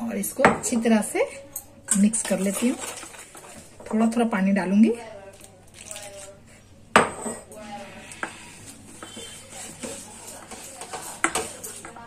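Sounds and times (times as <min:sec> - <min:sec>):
whisk scraping steel bowl: 0:07.6 - 0:12.0.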